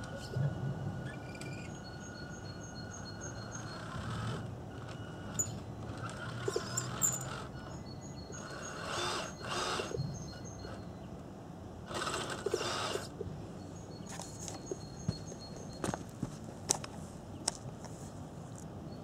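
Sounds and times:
toy truck electric motor whirring: 1.1 - 10.9, 11.8 - 13.2
bird chirps: 7.6 - 11.2.

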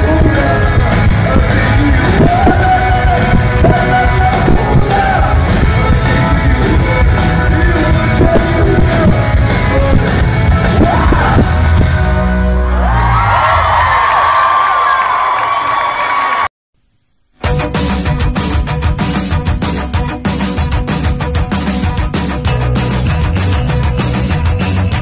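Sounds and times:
upbeat music with singing: 0.0 - 12.3.

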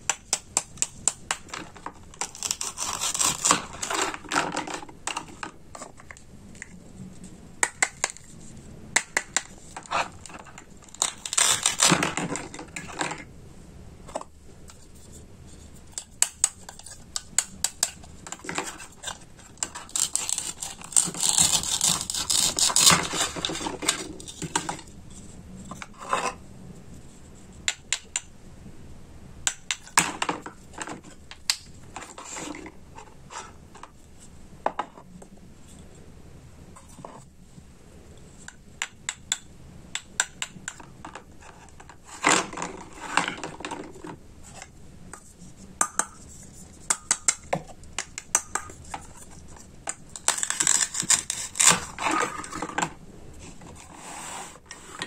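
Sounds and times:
plastic toys clacking on board: 0.1 - 6.7, 7.6 - 8.3, 9.0 - 13.3, 15.9 - 24.9, 38.8 - 46.2, 46.8 - 53.0
toy knife scraping: 2.2 - 5.9, 9.1 - 12.9, 15.9 - 24.8, 48.2 - 52.8.

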